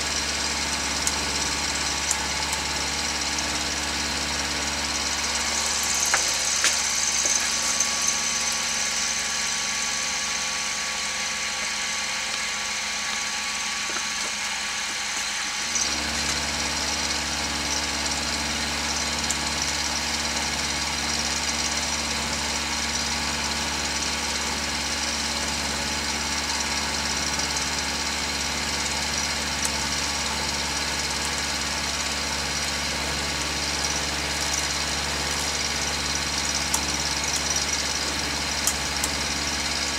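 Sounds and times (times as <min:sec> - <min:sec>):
deep low hum: 0:00.0 - 0:18.5
milling machine motor hum: 0:00.0 - 0:39.9.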